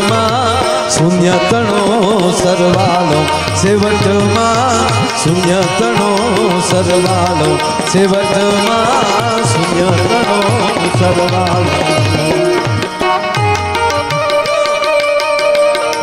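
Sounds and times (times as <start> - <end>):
tabla playing a rhythm: 0.0 - 16.0
wavering melody line: 1.1 - 16.0.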